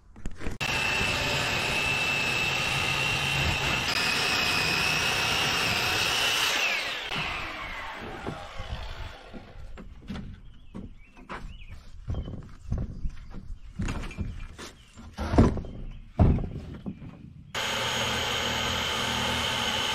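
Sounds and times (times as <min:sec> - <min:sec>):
circular saw ripping timber: 0:00.4 - 0:10.0, 0:17.6 - 0:19.9.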